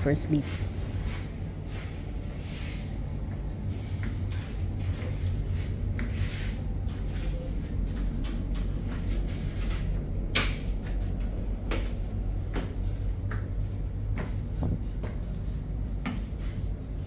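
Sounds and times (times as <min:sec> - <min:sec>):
steady low hum: 0:00.0 - 0:17.0
footsteps on wooden stairs: 0:11.0 - 0:16.6.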